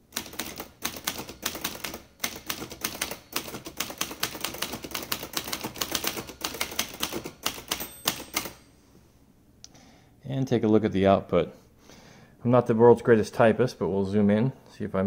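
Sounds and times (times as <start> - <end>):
typewriter type bar clacks: 0.1 - 8.6.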